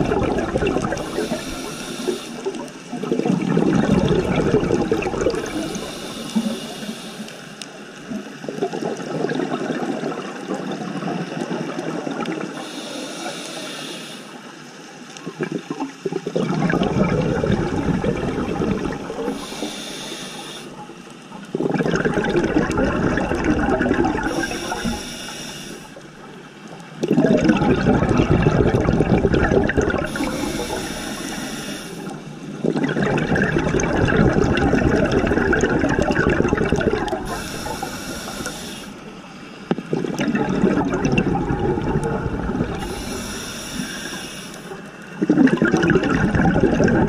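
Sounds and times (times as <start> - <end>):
exhaled bubbles underwater: 0.0 - 13.6, 14.5 - 47.0
regulator inhale hiss: 1.0 - 2.8, 5.4 - 7.8, 12.6 - 14.6, 19.2 - 21.1, 24.3 - 26.3, 30.0 - 32.4, 37.2 - 39.8, 42.8 - 45.0.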